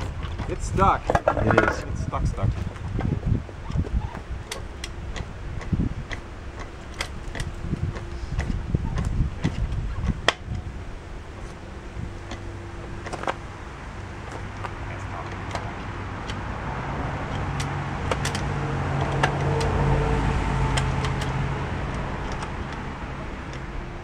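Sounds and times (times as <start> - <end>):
sharp clicks and knocks: 0.0 - 10.8, 11.4 - 13.5, 14.2 - 24.0
vehicle engine passing: 10.5 - 24.0.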